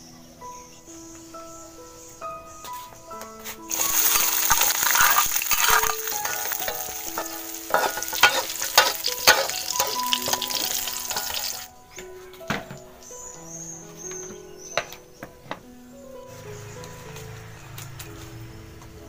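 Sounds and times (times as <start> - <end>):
food sizzling in hot oil: 3.7 - 11.7
metal spatula clicking on pan: 3.7 - 11.7.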